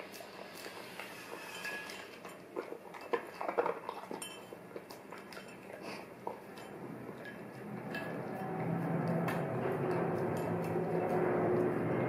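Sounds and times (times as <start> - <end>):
dog eating crunchy cereal: 0.0 - 12.0
metal spoon clinking on bowl: 1.4 - 3.2, 3.9 - 5.8, 6.5 - 8.4.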